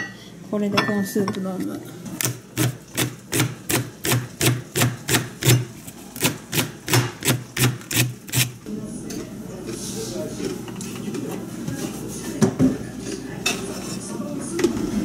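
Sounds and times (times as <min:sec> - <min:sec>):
knife chopping on cutting board: 0:02.2 - 0:08.5.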